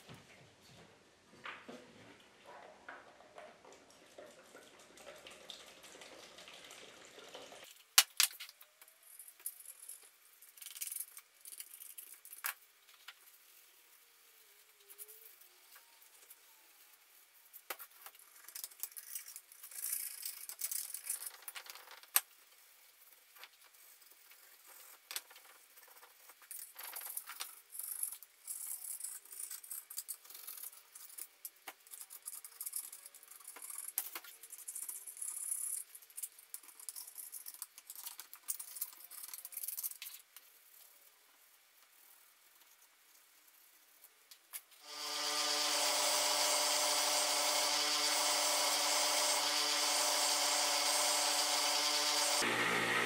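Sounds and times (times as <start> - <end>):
liquid pouring from a can: 3.6 - 7.8.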